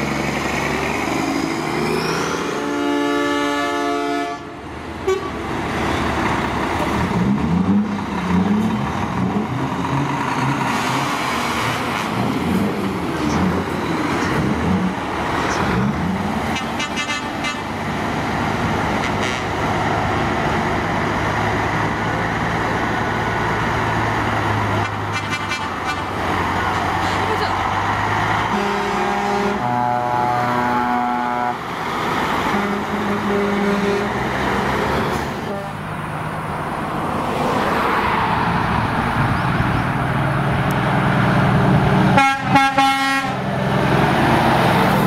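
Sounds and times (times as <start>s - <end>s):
truck diesel engines revving: 0.0s - 45.0s
air horn: 2.5s - 5.4s, 16.5s - 17.7s, 19.0s - 19.5s, 24.8s - 26.1s, 28.5s - 31.6s, 32.5s - 34.1s, 35.4s - 35.8s, 42.2s - 43.4s.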